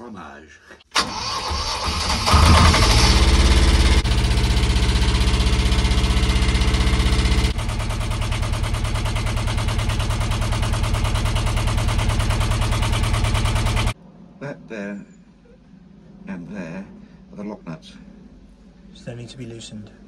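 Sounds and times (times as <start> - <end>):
diesel engine running: 1.0 - 14.0.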